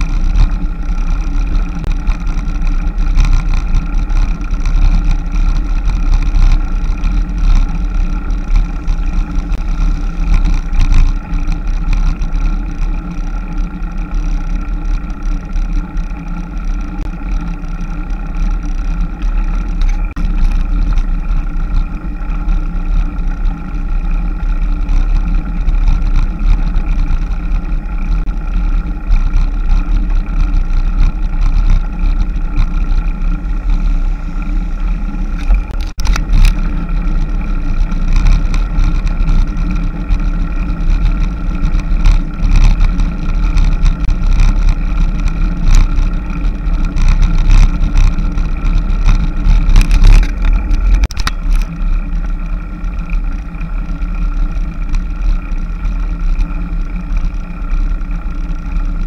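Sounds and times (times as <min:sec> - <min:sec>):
small knocks and rattles: 0:00.0 - 0:13.2, 0:35.3 - 0:51.8
wind and road rumble: 0:00.0 - 0:59.0.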